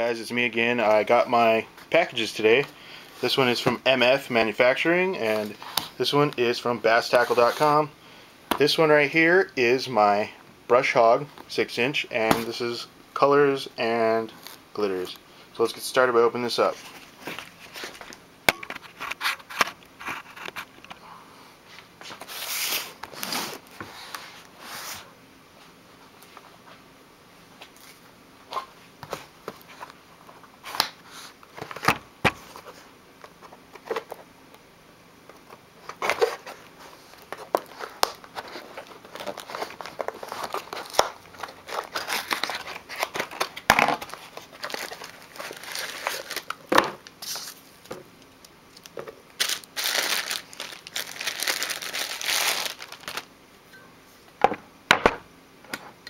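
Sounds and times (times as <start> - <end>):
packing material crinkling and tearing: 35.9 - 47.6, 48.7 - 53.3.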